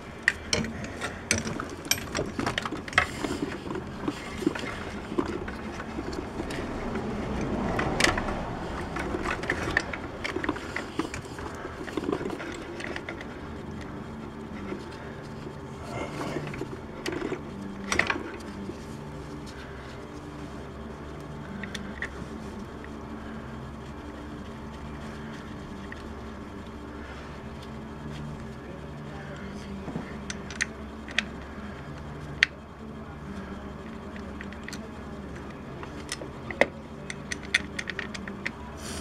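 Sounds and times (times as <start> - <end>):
low steady hum: 0.0 - 39.0
tools clicking and knocking: 0.2 - 13.9, 35.9 - 38.6.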